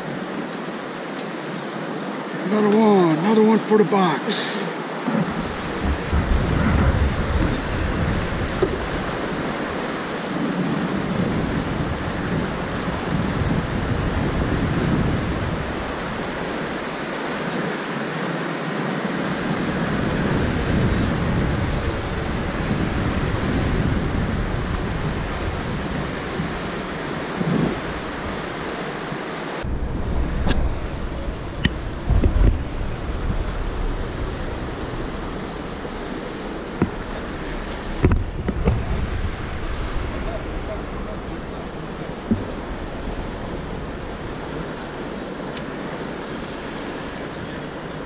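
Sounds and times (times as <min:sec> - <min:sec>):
choppy river water: 0:00.0 - 0:48.0
wind on microphone: 0:04.8 - 0:48.0.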